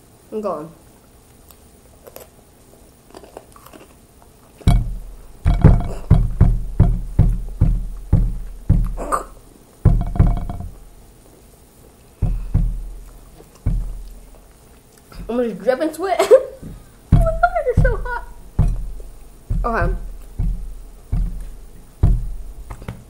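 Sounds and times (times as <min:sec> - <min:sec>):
heavy thumps on a table: 0:04.7 - 0:10.9, 0:12.2 - 0:14.4, 0:16.6 - 0:23.0.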